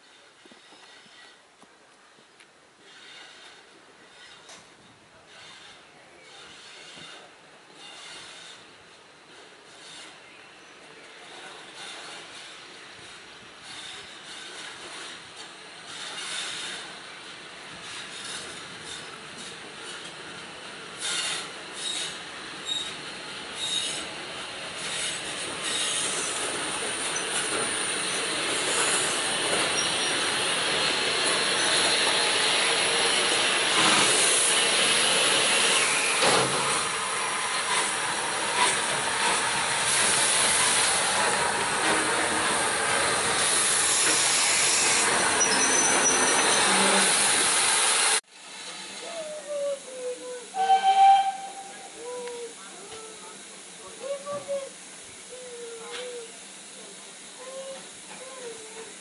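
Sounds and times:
steam train running slowly: 0:00.0 - 0:59.0
high wheel squeal: 0:21.0 - 0:23.0, 0:23.6 - 0:24.1, 0:24.8 - 0:33.3, 0:44.0 - 0:47.5.

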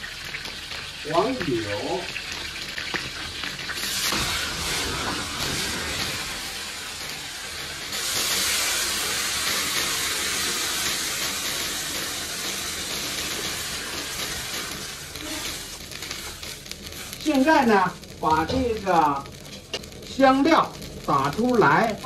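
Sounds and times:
meat sizzling in hot wok: 0:00.0 - 0:22.0
water hissing with steam: 0:01.0 - 0:19.2.

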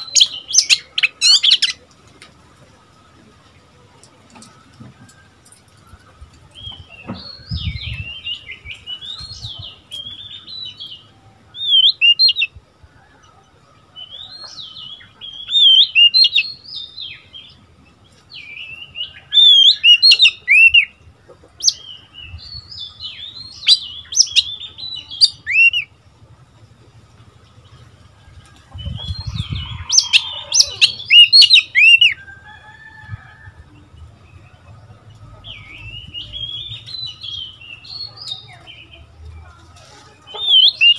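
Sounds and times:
bird singing whistled phrases: 0:25.2 - 0:25.9, 0:29.4 - 0:32.2.

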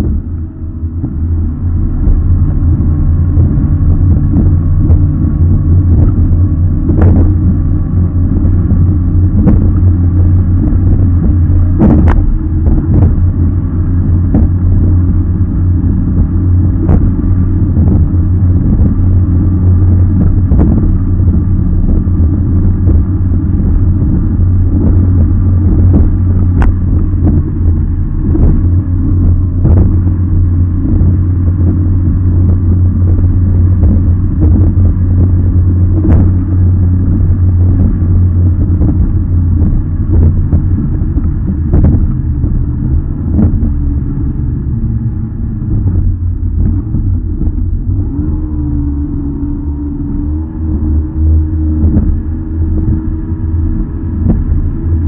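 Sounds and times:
boat engine droning: 0:00.0 - 0:55.0
hull slamming on waves: 0:00.0 - 0:55.0.

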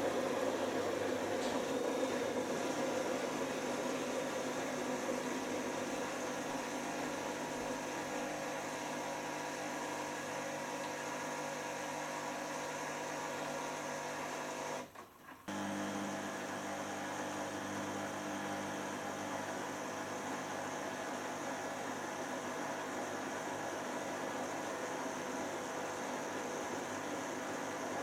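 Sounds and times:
washing machine running: 0:00.0 - 0:28.0.

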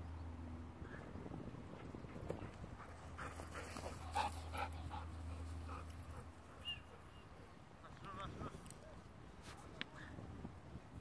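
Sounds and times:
dog panting: 0:02.1 - 0:07.0.

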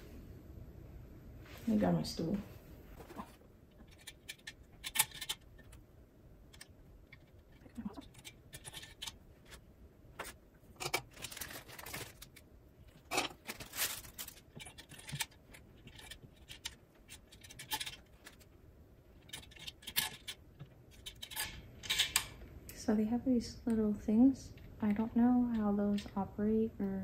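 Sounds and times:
metal needles clicking and scraping: 0:03.7 - 0:05.8, 0:06.5 - 0:09.6, 0:10.2 - 0:22.4.

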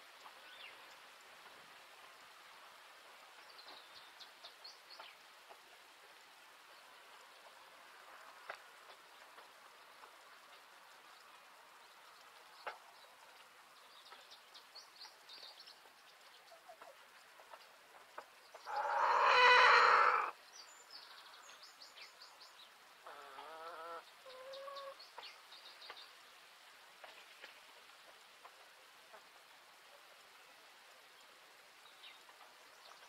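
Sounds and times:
small birds chirping: 0:00.2 - 0:01.6, 0:02.7 - 0:33.0
chicken calling: 0:18.7 - 0:20.4, 0:23.0 - 0:25.0
chicken clucking: 0:23.0 - 0:25.0.

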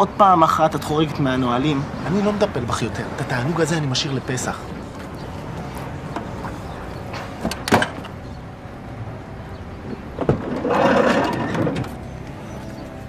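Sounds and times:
van door clunks: 0:06.0 - 0:08.2
sliding van door scraping on track: 0:09.9 - 0:12.6.

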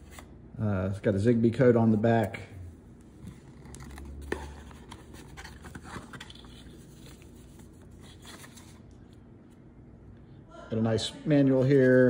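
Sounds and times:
cardboard box and paper handling: 0:03.3 - 0:08.8.

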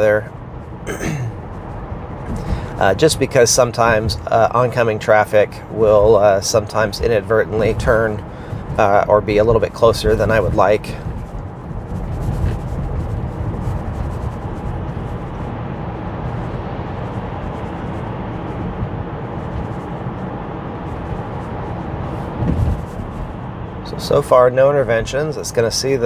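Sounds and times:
road and tyre noise in car: 0:00.0 - 0:26.0.

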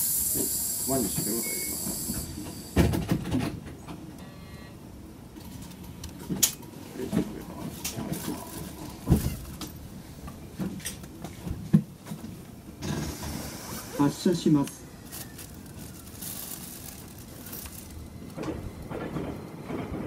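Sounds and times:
footsteps in train car: 0:01.0 - 0:04.2, 0:05.2 - 0:13.9, 0:14.6 - 0:20.0
air hissing: 0:12.8 - 0:14.0.

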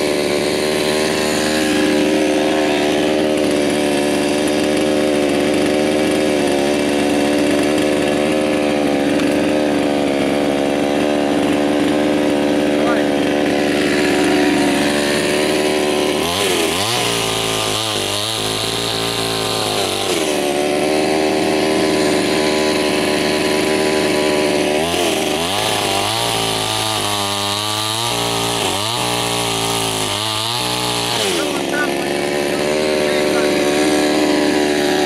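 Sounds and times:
chainsaw cutting logs: 0:00.0 - 0:35.0.

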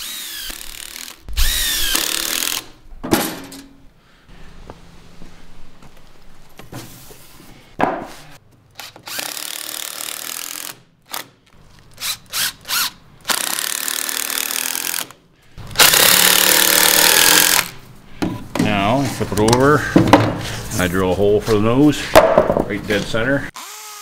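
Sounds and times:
cordless drill driving screws into wood: 0:00.0 - 0:02.8, 0:08.8 - 0:11.4, 0:12.0 - 0:15.2, 0:15.8 - 0:17.8, 0:23.6 - 0:24.0.

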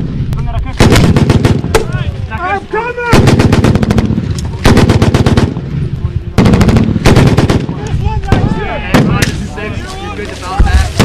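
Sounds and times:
single gunshots: 0:00.8 - 0:01.9, 0:03.1 - 0:05.6, 0:06.4 - 0:09.4.

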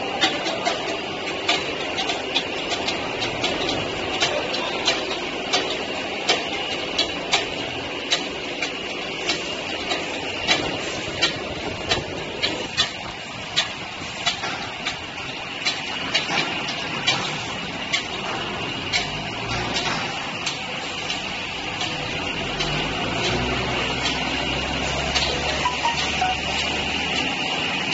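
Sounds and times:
machine hum and hiss: 0:00.0 - 0:27.9
sharp irregular clicks: 0:00.2 - 0:27.9
high whine: 0:25.2 - 0:27.2.

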